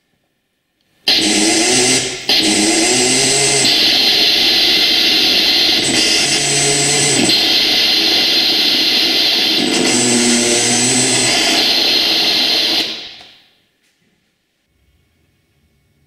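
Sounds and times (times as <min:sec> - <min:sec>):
radio static noise: 0:01.1 - 0:13.4.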